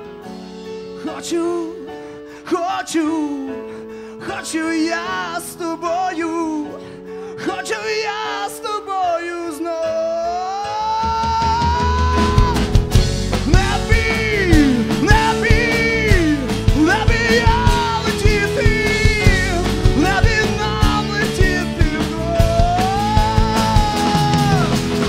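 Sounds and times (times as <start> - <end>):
keyboard melody sliding in pitch: 8.3 - 25.0
drum kit beat: 10.9 - 25.0
acoustic guitar: 11.3 - 25.0
electric bass: 12.0 - 25.0.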